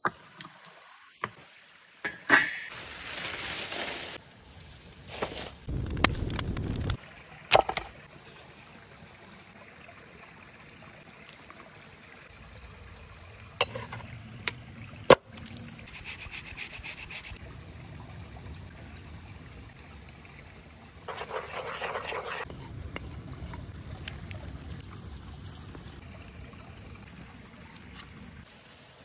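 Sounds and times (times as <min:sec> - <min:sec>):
creek trickling: 0:07.0 - 0:29.0.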